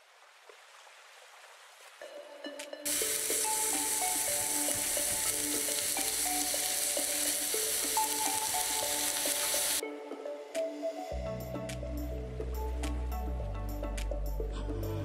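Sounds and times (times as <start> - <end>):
soft background music: 2.0 - 15.0
meat sizzling on a grill: 2.9 - 9.8.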